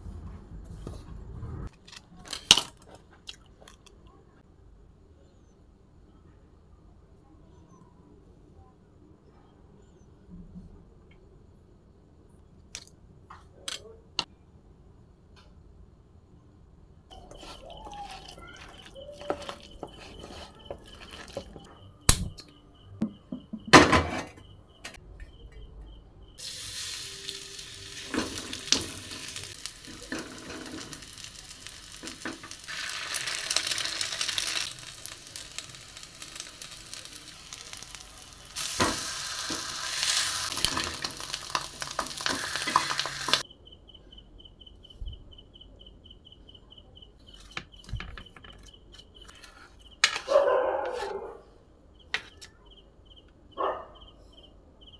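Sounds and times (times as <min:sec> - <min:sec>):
spoon scraping and tapping pan: 0:17.3 - 0:21.7
batter sizzling on griddle: 0:26.4 - 0:43.4.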